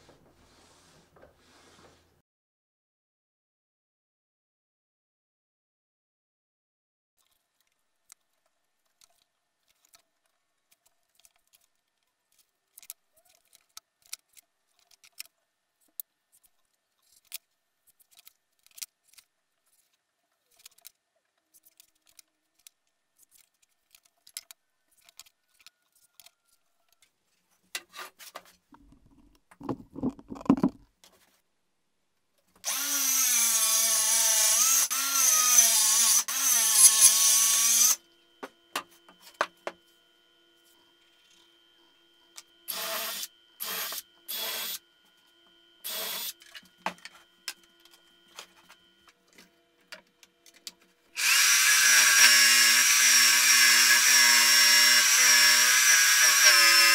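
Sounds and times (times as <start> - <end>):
knocks and scrape on board: 27.8 - 31.3
circular saw cutting plywood: 32.6 - 38.0, 42.7 - 49.4, 51.1 - 56.9.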